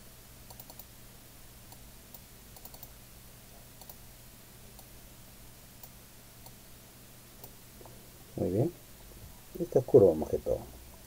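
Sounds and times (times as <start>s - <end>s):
low steady hum: 0.0s - 11.0s
computer mouse clicks: 0.5s - 0.9s, 1.7s - 3.0s, 3.8s - 4.0s.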